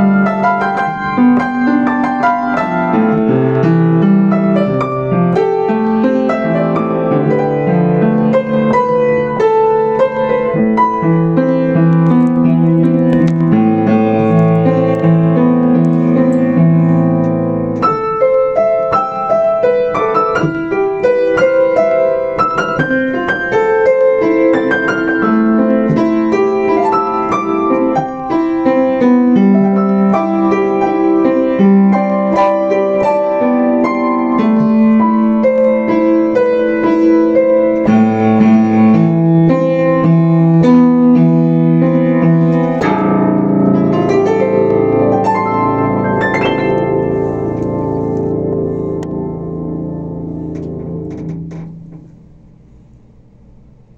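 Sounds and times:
upright piano playing: 0:00.0 - 0:52.4.

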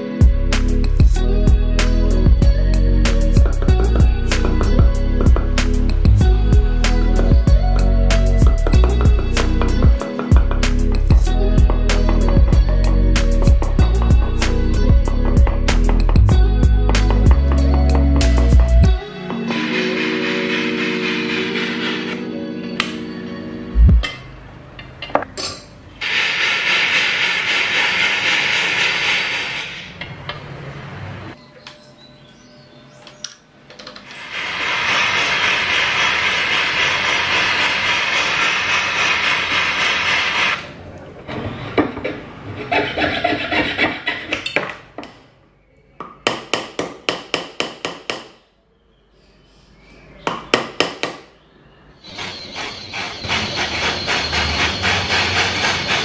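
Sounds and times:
saw cutting metal: 0:19.3 - 0:22.3, 0:26.0 - 0:30.0, 0:34.0 - 0:40.7, 0:52.0 - 0:56.0
hammer striking metal: 0:23.9 - 0:25.8.

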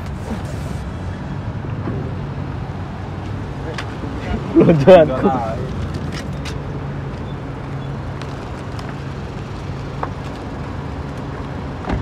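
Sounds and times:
car engine hum from inside: 0:00.0 - 0:12.0.

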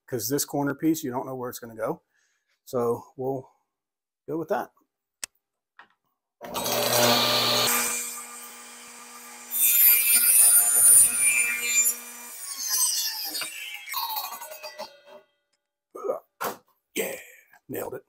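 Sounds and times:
table saw running: 0:06.4 - 0:14.9
saw blade winding down: 0:06.4 - 0:15.2
saw cutting wood: 0:06.4 - 0:15.2.

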